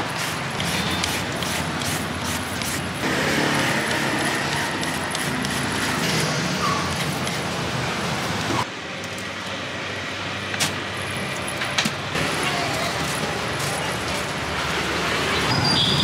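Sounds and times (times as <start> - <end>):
peeler scraping vegetables: 0.0 - 7.5
street traffic: 0.0 - 16.0.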